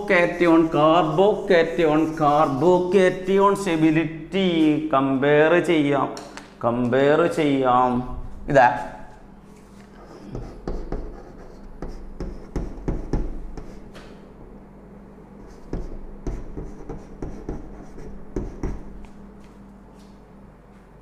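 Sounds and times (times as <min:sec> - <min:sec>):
chalk tapping on chalkboard: 0:00.2 - 0:03.6, 0:09.9 - 0:14.1, 0:15.4 - 0:19.2.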